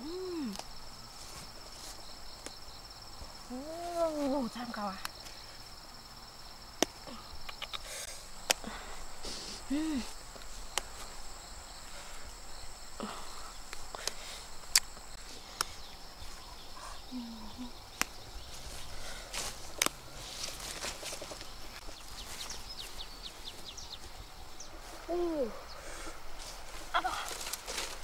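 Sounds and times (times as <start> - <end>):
insects chirring: 0.0 - 28.0
flower stems snapping: 8.4 - 8.7, 13.7 - 15.0, 19.8 - 20.0.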